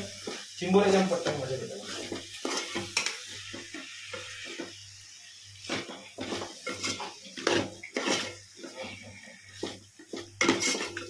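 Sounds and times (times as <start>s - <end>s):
metal spoon scraping cooking pot: 10.4s - 11.0s.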